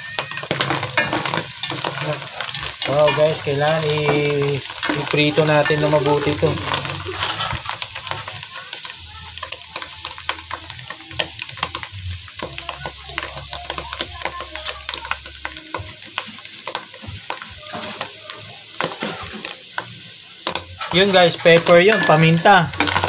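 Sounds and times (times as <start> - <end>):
mushrooms sizzling in a pot: 0.0 - 23.0
wooden spatula scraping a pot: 0.4 - 8.4, 20.8 - 23.0.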